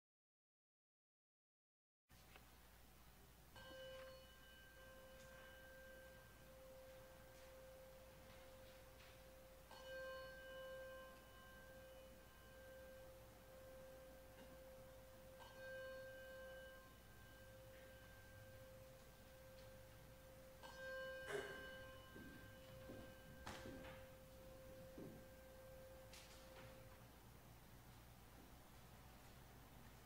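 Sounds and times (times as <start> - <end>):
faint bell-like chime: 3.5 - 27.2.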